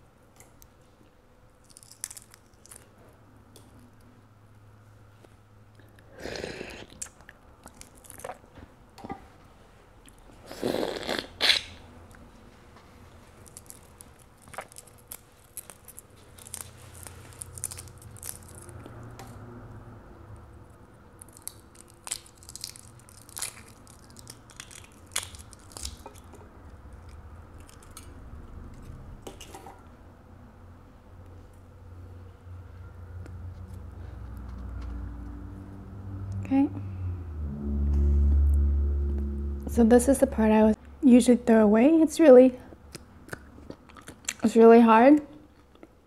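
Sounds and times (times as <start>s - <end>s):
loud slurping bite: 10.4s - 11.8s.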